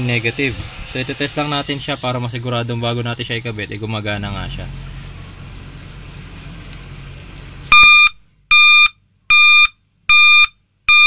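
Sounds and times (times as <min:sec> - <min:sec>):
reverse horn beeping: 0:07.7 - 0:11.0.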